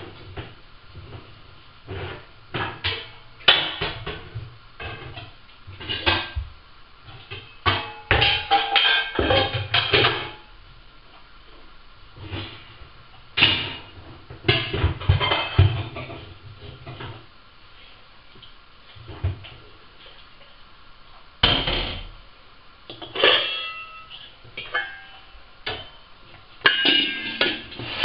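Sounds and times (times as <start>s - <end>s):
kitchen items clattering in cabinet: 13.4s - 17.2s, 26.6s - 28.0s.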